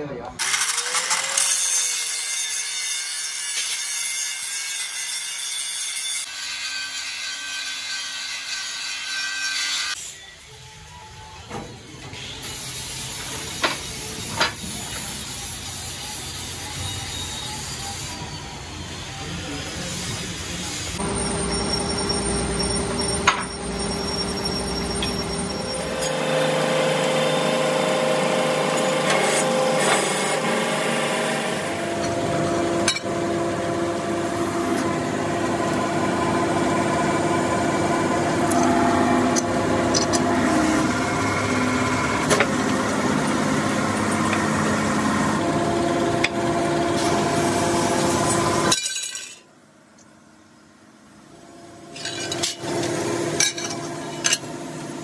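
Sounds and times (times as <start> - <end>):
hydraulic press whine: 11.1 - 48.8.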